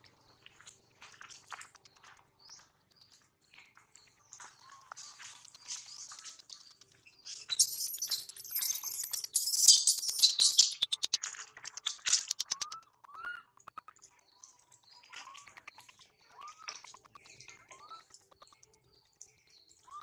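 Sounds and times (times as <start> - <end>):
high-pitched animal chirping: 7.5 - 13.9
quick run of clicks: 10.2 - 12.9.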